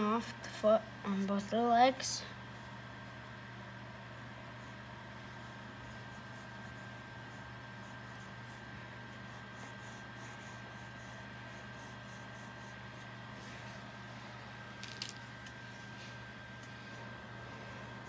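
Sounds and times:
steady low hum: 0.0s - 18.0s
pencil scratching on paper: 4.6s - 13.8s.

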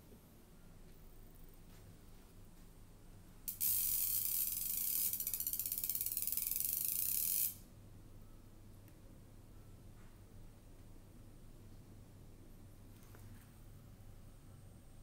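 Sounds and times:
high-pitched mechanical buzzing rattle: 3.5s - 7.7s.

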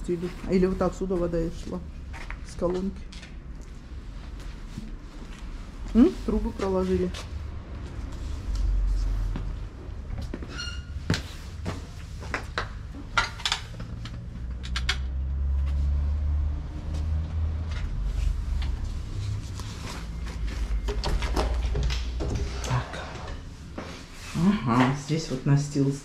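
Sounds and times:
squeak: 10.5s - 11.0s
low rumble on microphone: 13.8s - 24.4s
footstep knocks and clicks: 20.3s - 22.8s.

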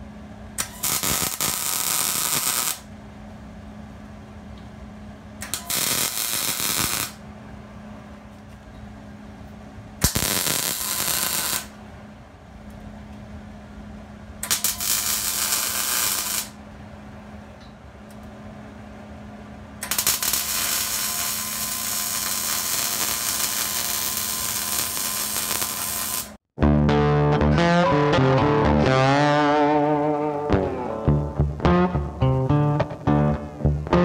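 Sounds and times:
arc welding crackling: 0.6s - 2.9s, 5.4s - 7.2s, 10.0s - 11.8s, 14.4s - 16.6s, 19.8s - 26.4s
low hum: 26.6s - 34.0s.

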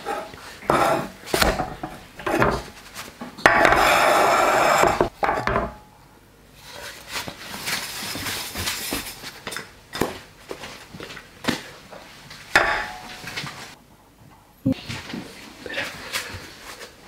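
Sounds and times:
pan scraping on hot plate: 0.0s - 2.8s, 3.4s - 5.6s
pan rubbing: 0.0s - 2.9s, 3.5s - 5.4s
frying pan knocking: 4.8s - 5.8s, 12.6s - 13.2s.

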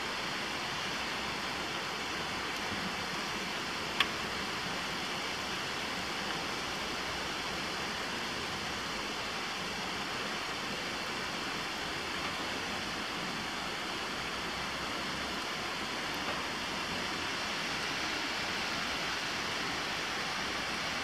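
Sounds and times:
rain falling: 0.0s - 21.0s.

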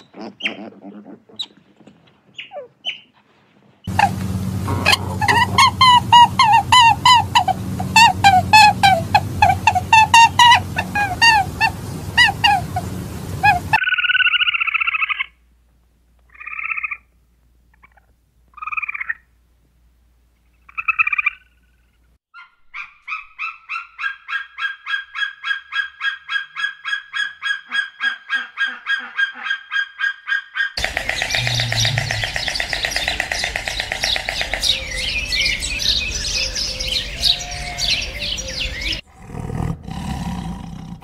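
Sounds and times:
animal calls: 0.0s - 3.2s, 3.8s - 15.3s, 22.4s - 40.9s
low hum: 3.9s - 13.8s, 30.8s - 36.4s.

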